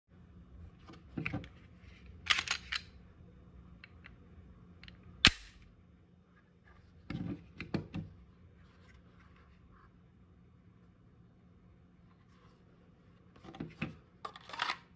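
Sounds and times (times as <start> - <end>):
pistol and holster clicks and rattles: 2.3 - 2.9.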